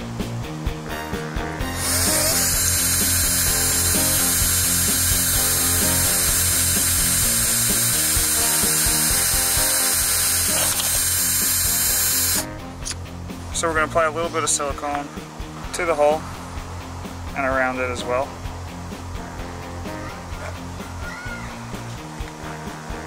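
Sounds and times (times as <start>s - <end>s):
cordless drill boring sheet metal: 1.7s - 12.5s.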